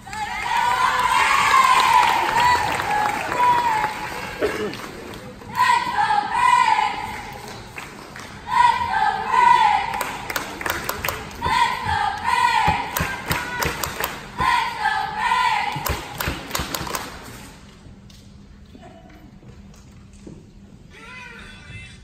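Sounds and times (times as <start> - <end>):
cheerleaders chanting in unison: 0.1 - 4.3, 5.4 - 7.5, 8.4 - 16.6
sharp claps and thumps: 12.7 - 14.2, 15.7 - 17.2.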